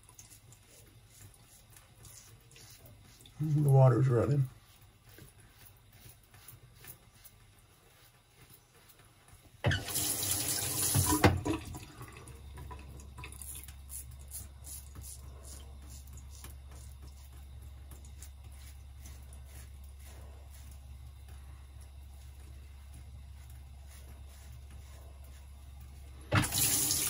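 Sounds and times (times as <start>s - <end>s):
tap water running into sink: 9.7s - 13.8s, 26.3s - 27.0s.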